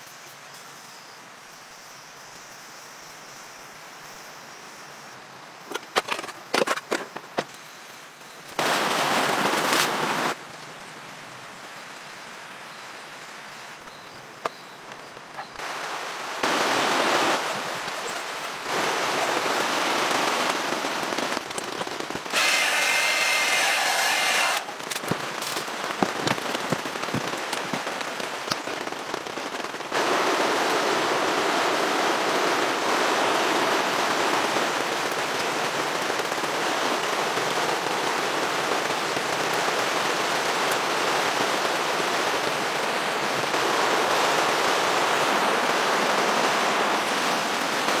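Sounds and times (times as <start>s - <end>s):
rain on a tent: 0.0s - 48.0s
heavy rain: 4.8s - 48.0s
sharp crackling clicks: 24.5s - 27.8s.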